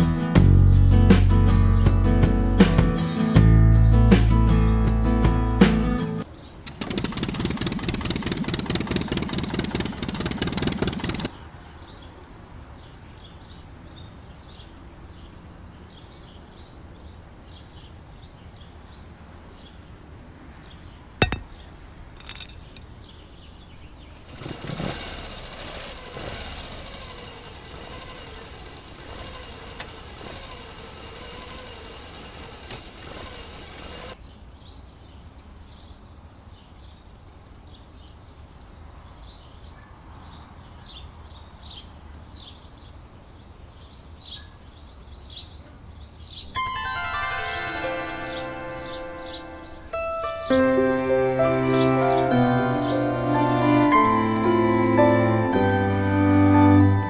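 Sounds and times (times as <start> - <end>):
birds chirping: 6.2 - 12.1, 47.6 - 57.0
sharp click: 6.7 - 11.3, 22.1 - 22.8
small electric toy motor buzzing: 6.7 - 11.3, 24.3 - 34.2.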